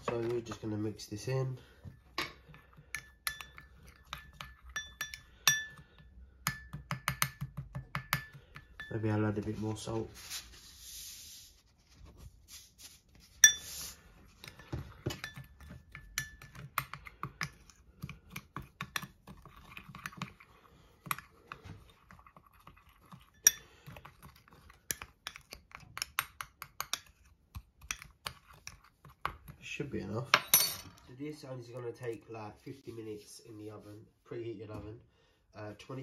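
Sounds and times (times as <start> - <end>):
metal spoon clinking on glass bowl: 2.9 - 5.8, 8.0 - 9.1, 13.4 - 13.7, 15.1 - 16.6, 23.3 - 23.7.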